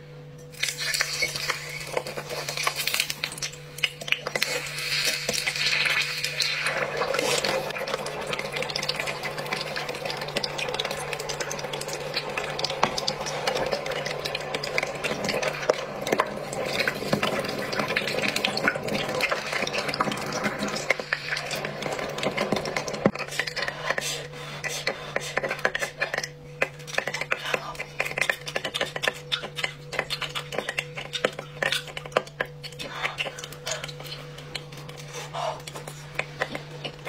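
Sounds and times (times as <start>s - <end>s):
low steady hum: 0.0s - 37.0s
dense crackle: 0.6s - 23.7s.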